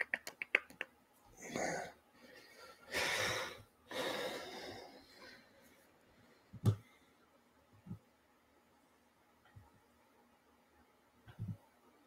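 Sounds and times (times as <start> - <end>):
man breathing: 1.4 - 7.3.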